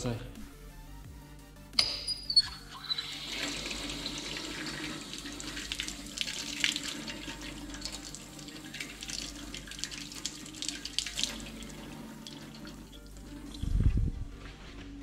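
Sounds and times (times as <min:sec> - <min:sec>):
tap water running and splashing: 0:02.7 - 0:14.0.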